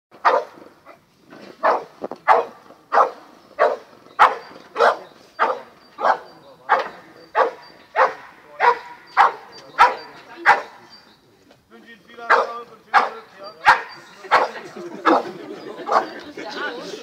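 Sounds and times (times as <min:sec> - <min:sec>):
dog barking: 0:00.2 - 0:01.0, 0:01.6 - 0:10.9, 0:12.3 - 0:15.2, 0:15.9 - 0:16.1.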